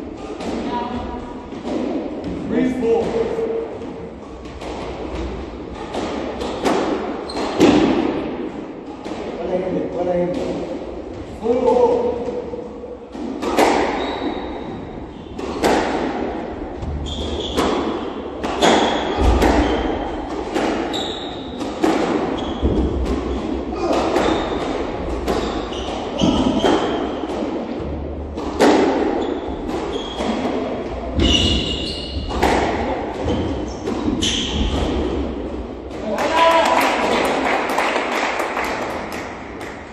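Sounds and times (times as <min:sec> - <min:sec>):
squash ball hitting rackets: 0:00.0 - 0:10.9, 0:11.8 - 0:37.4
shoes squeaking on wooden floor: 0:13.9 - 0:14.6, 0:20.9 - 0:21.6, 0:29.1 - 0:30.4, 0:31.2 - 0:32.4, 0:33.3 - 0:34.8.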